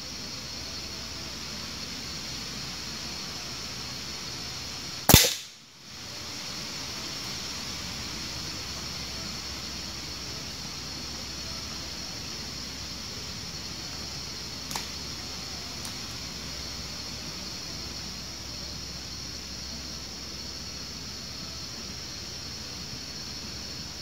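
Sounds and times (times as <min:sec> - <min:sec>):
rifle shot: 0:05.1 - 0:05.6.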